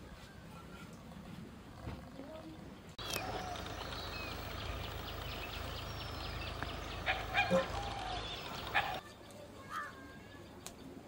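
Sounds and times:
steady low hum: 3.0s - 9.0s
birds chirping and calling: 3.0s - 9.2s.

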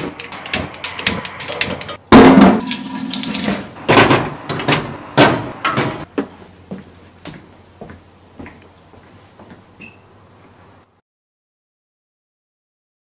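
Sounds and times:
kitchen clicks and knocks: 0.0s - 6.1s.

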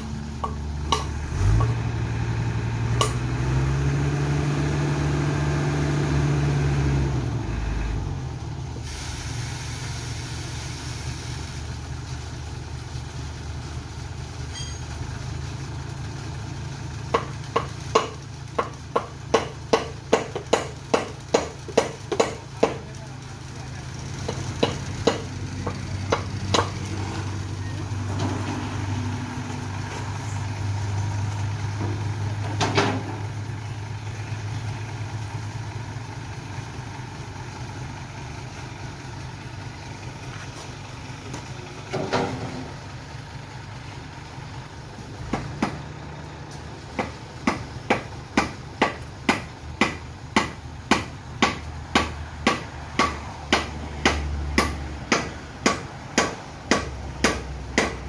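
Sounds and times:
sharp metal clanks: 0.0s - 1.8s, 3.0s - 3.3s, 14.5s - 15.0s
truck engine running: 0.0s - 58.0s.

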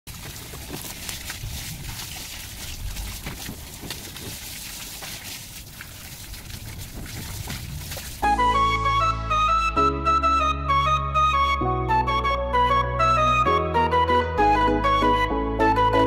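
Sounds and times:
water spraying from hose: 0.1s - 8.3s
flute music: 8.2s - 16.0s.

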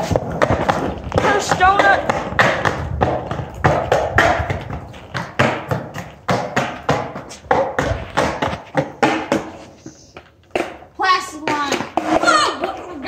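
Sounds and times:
skateboard clacking on concrete: 0.0s - 13.0s.

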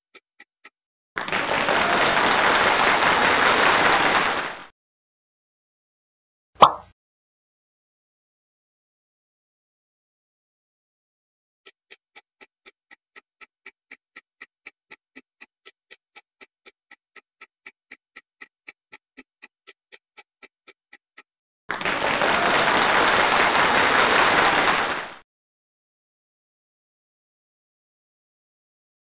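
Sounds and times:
countdown timer ticking: 11.7s - 21.3s.

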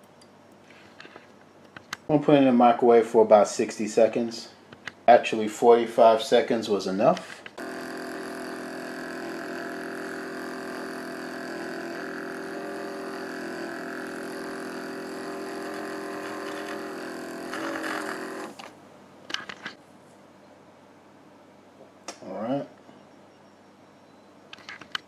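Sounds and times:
milk frother motor whine: 7.6s - 18.7s.

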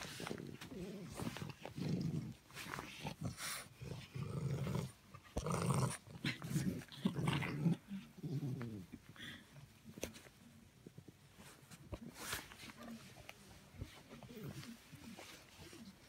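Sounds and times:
puppy growling: 0.0s - 9.4s.

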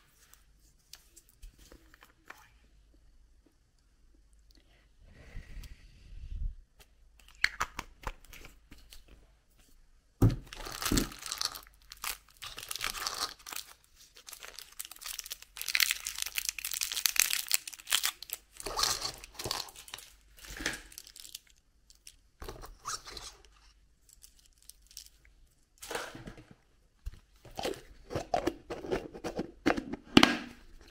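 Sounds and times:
candy wrappers crinkling: 10.4s - 22.2s, 24.0s - 25.3s.

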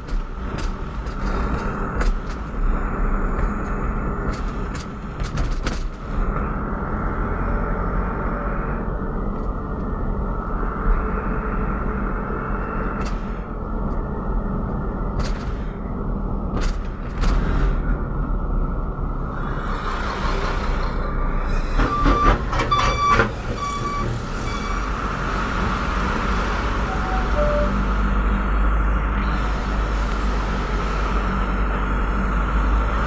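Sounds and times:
vehicle engine and road noise: 0.0s - 33.0s
short high-pitched beeps: 26.9s - 27.8s.

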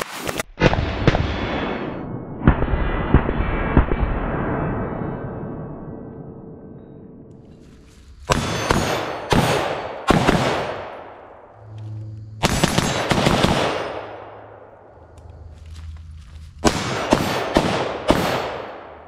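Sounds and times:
suppressed rifle shots echoing: 8.3s - 11.6s, 12.4s - 14.9s, 16.6s - 19.0s.

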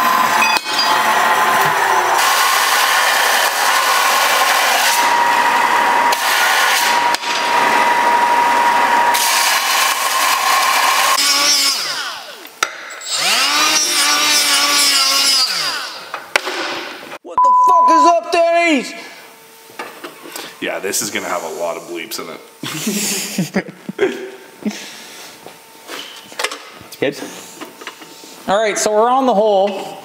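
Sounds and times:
power saw cutting metal: 0.0s - 16.2s
saw motor whining: 0.0s - 16.2s.

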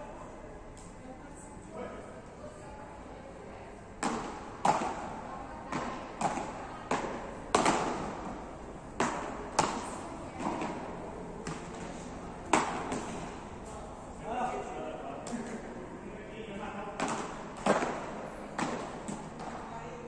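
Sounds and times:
paddles striking ball echoing: 4.0s - 13.7s, 16.9s - 19.9s.

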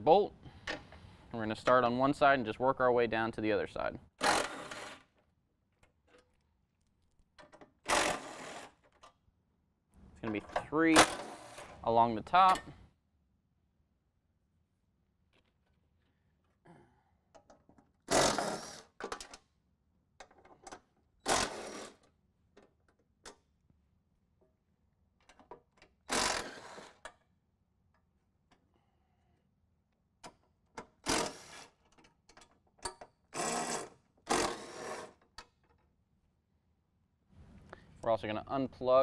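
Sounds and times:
impact driver bursts: 7.9s - 8.7s, 21.2s - 22.0s, 26.1s - 27.0s, 31.0s - 31.7s, 33.4s - 35.2s
handling clicks of loose bolts: 31.7s - 33.2s.

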